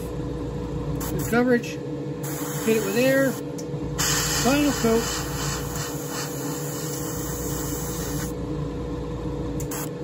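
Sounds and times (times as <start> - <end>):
steady low hum: 0.0 - 10.0
airbrush hissing: 2.2 - 3.4, 4.0 - 8.4.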